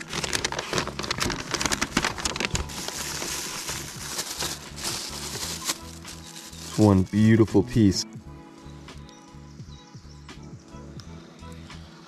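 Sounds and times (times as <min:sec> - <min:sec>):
paper crinkling: 0:00.0 - 0:07.2
plastic bag rustling: 0:00.0 - 0:07.2.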